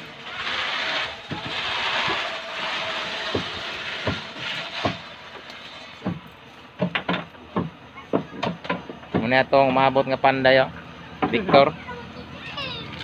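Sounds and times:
steady rushing noise: 0.0s - 6.4s
knocks and taps on wood: 6.8s - 9.3s.

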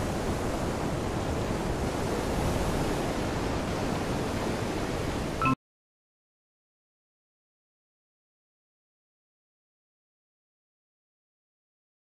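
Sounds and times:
wind buffeting microphone: 0.0s - 5.4s.

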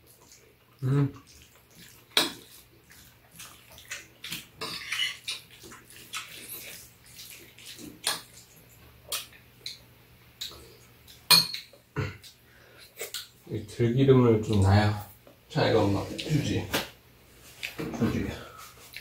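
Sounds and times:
utensils clinking on ceramic bowls: 4.6s - 5.3s.

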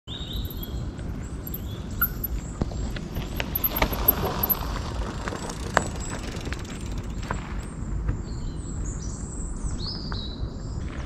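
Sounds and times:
bike clanking and rattling: 0.2s - 0.8s, 1.4s - 7.8s
bike tyres rolling on dirt: 1.4s - 8.7s.

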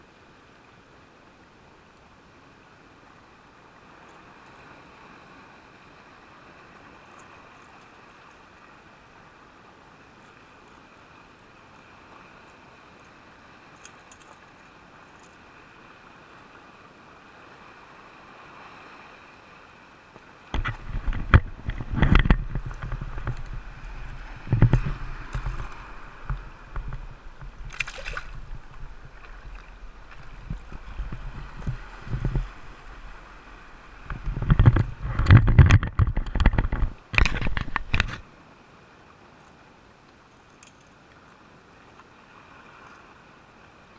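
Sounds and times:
sea water sloshing on rocks: 20.4s - 38.2s
camera handling noise: 34.0s - 38.2s.

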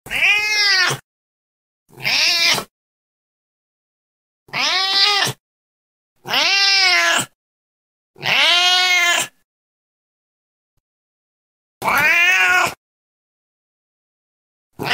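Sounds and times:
cat meowing: 0.1s - 1.0s, 1.9s - 2.7s, 4.5s - 5.4s, 6.2s - 7.4s, 8.2s - 9.4s, 11.8s - 12.8s.

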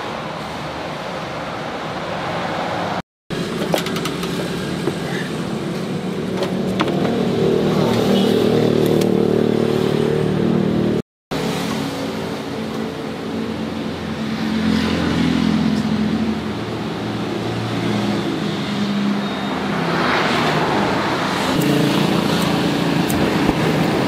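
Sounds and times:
roadside traffic noise: 0.0s - 24.0s.

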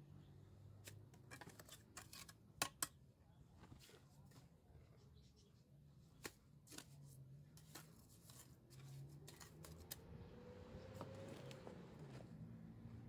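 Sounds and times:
masonry clicks and scrapes: 0.7s - 3.0s, 6.2s - 10.0s.

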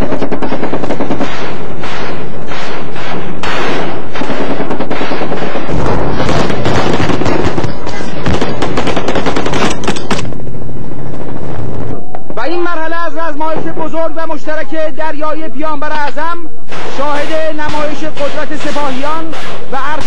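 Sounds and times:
rapid automatic gunfire: 0.0s - 11.8s, 16.7s - 20.0s.

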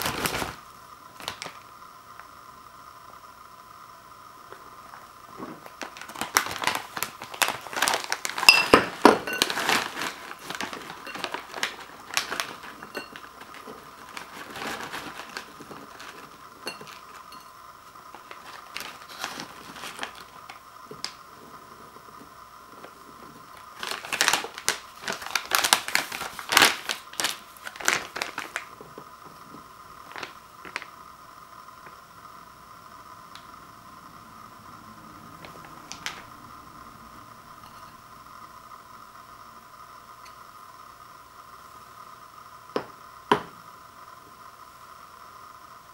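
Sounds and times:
foil snack bag crinkling: 0.0s - 1.7s, 4.8s - 31.0s, 35.4s - 36.3s
cookies clattering into ceramic bowl: 6.1s - 17.5s.

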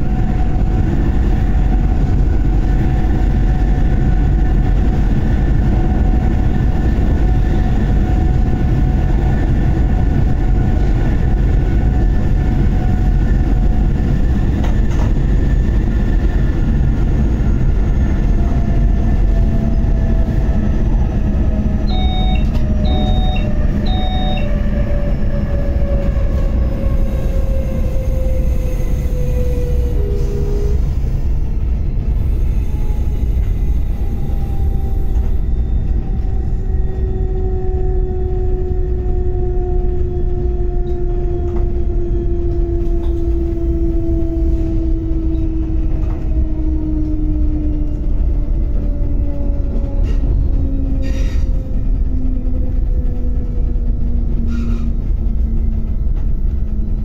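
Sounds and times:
train wheels rumbling: 0.0s - 57.0s
short electronic beeps: 21.9s - 24.5s.

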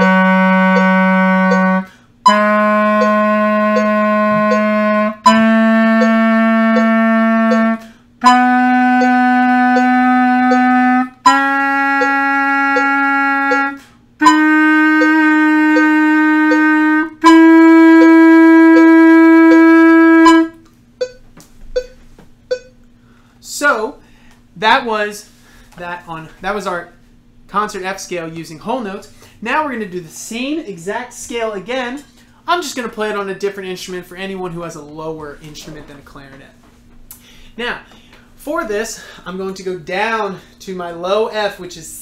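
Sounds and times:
clarinet playing scale: 0.0s - 21.2s, 21.8s - 22.7s
metronome ticking: 0.0s - 22.8s.

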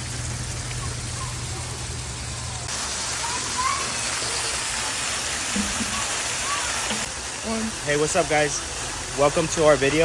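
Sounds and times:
water spray falling on pond: 0.0s - 10.0s.

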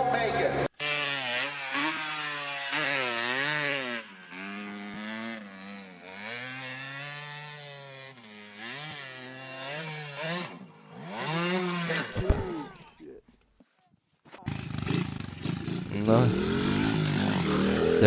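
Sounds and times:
dirt bike engine revving: 0.7s - 12.9s, 14.4s - 18.0s.

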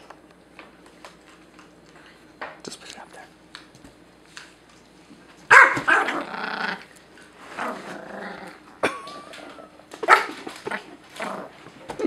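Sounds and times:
small dog growling and barking: 5.5s - 8.7s, 9.3s - 12.0s.

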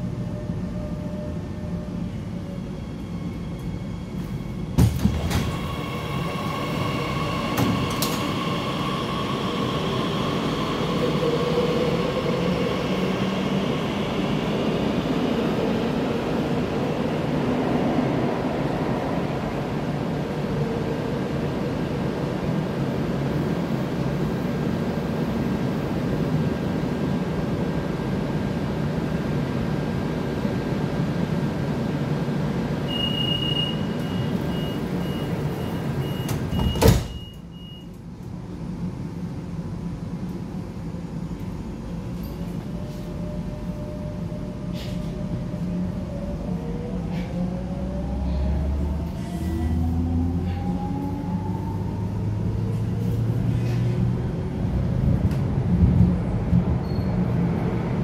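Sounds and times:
train standing humming: 0.0s - 36.6s
sliding doors shutting with thump: 4.8s - 5.7s, 36.2s - 37.3s
high door warning beep: 32.9s - 38.0s.

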